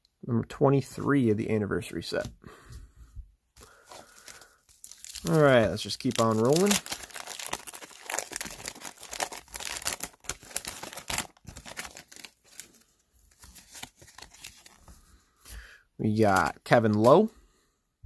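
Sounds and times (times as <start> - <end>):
paper wrapper tearing and crinkling: 3.8 - 14.9.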